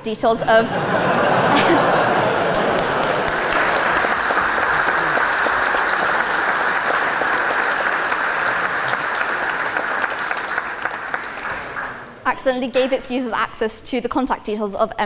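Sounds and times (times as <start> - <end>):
large audience applauding: 0.9 - 12.2.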